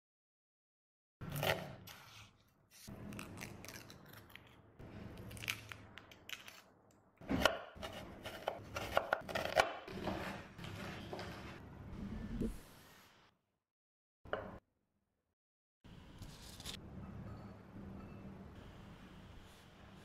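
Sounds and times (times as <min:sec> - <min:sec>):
knife slicing onion: 0:01.2 - 0:02.9, 0:07.2 - 0:11.5
knife chopping on wooden board: 0:07.2 - 0:11.4.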